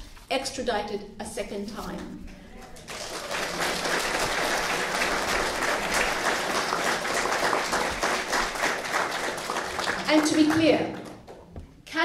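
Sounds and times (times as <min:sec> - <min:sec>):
audience applauding: 0:02.6 - 0:11.5.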